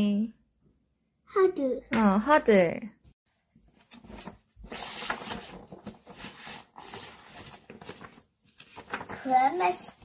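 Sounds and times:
cardboard book pages turning: 0:03.7 - 0:10.0.

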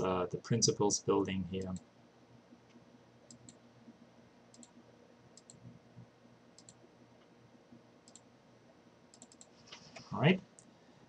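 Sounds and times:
low room hum: 0:00.0 - 0:11.0
faint computer mouse clicks: 0:03.3 - 0:03.6, 0:04.5 - 0:04.8, 0:05.4 - 0:05.7, 0:06.6 - 0:06.8, 0:08.1 - 0:08.3, 0:09.1 - 0:10.0.

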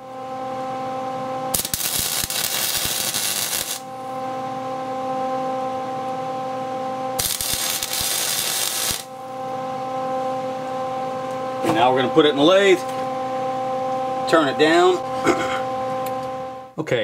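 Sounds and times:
steady welder hum: 0:00.0 - 0:16.8
welder crackling: 0:01.5 - 0:03.8, 0:07.2 - 0:09.1.

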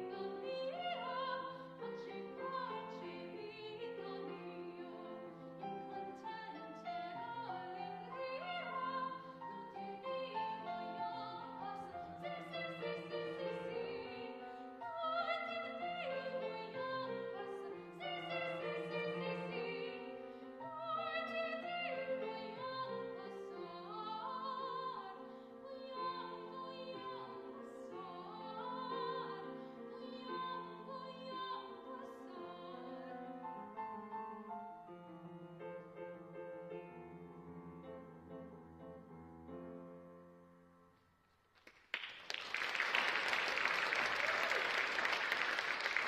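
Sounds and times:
woman singing operatically: 0:00.0 - 0:05.2, 0:06.0 - 0:33.3
upright piano: 0:00.0 - 0:41.0.

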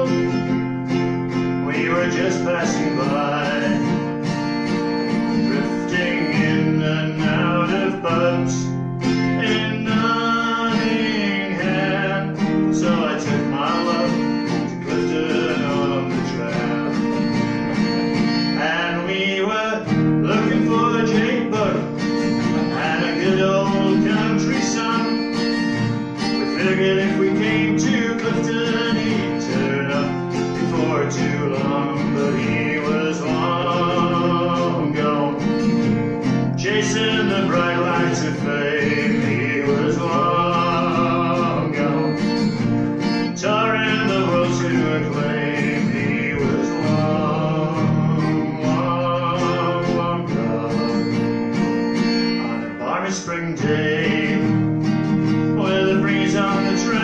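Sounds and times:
acoustic guitar: 0:00.0 - 0:57.0
man singing: 0:00.0 - 0:57.0.

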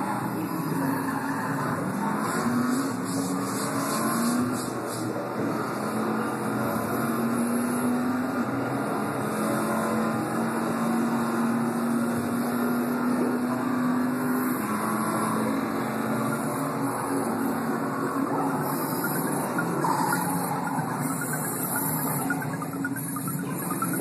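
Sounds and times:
car engine droning: 0:00.0 - 0:24.0
road noise: 0:00.0 - 0:24.0.

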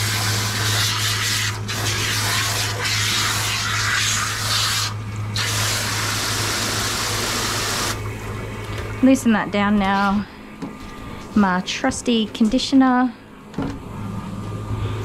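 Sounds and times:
shower sprayer hissing: 0:00.0 - 0:08.0
steady low hum: 0:00.0 - 0:15.0.

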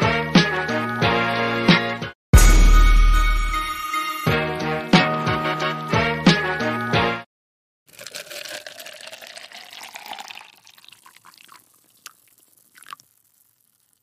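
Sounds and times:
coffee pouring into glass cup: 0:07.9 - 0:14.0
dripping: 0:07.9 - 0:14.0.

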